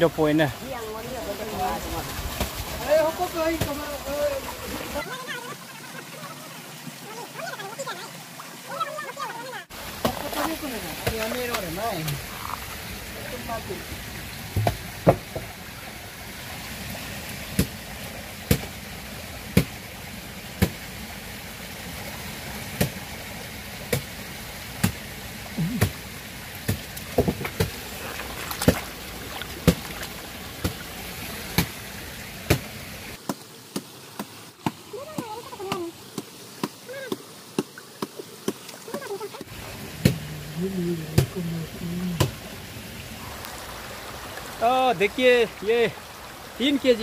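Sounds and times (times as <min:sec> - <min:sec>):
river water rushing: 0:00.0 - 0:47.0
sharp knocks: 0:14.5 - 0:15.5.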